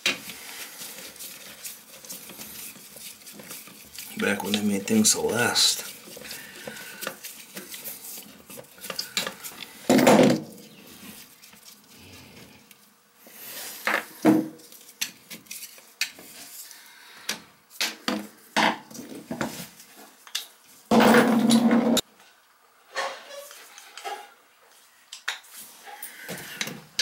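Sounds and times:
tools set down on tile floor: 9.9 - 10.5, 20.9 - 22.0.

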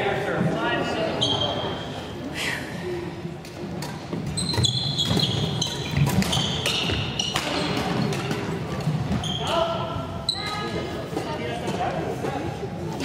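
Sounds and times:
sneaker squeaks: 1.1 - 2.2, 4.2 - 10.9
racket hitting shuttlecock: 3.4 - 9.2.

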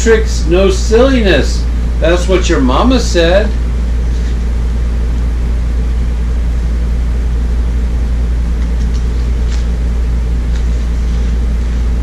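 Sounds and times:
low mechanical hum: 0.0 - 12.0
book pages rustling: 8.6 - 9.8, 10.4 - 12.0.

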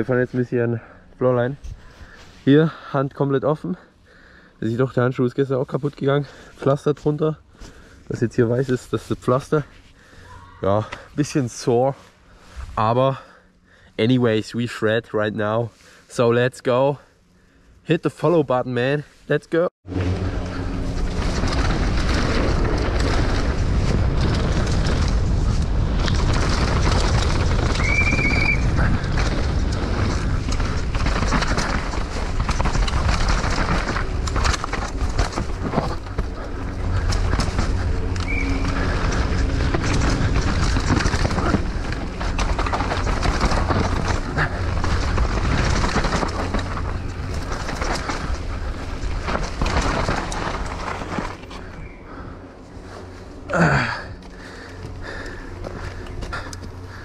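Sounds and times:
bike clattering and rattling: 19.9 - 57.0
tyres on dirt: 19.9 - 57.0
wind rush on microphone: 20.0 - 53.2.

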